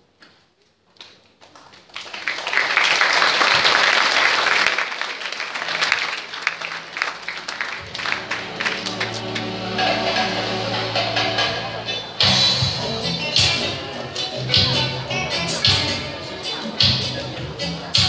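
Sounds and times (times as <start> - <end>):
crowd applauding: 1.4 - 11.5
music: 7.0 - 18.0.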